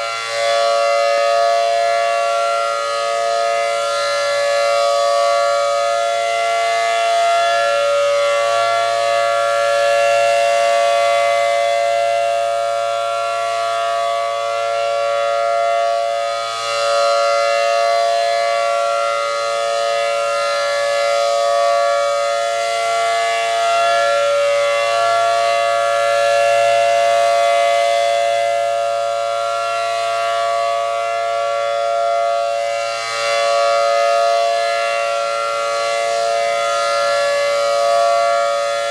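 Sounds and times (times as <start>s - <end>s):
rotating siren chord tone: 0.0s - 38.9s.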